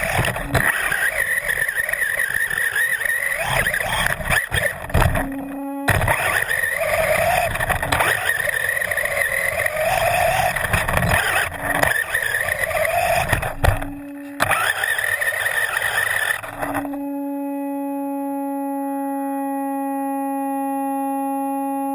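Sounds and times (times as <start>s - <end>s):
tyres churning loose sand: 0.0s - 16.9s
electric motor whining: 0.0s - 17.4s
steady low hum: 0.0s - 21.9s.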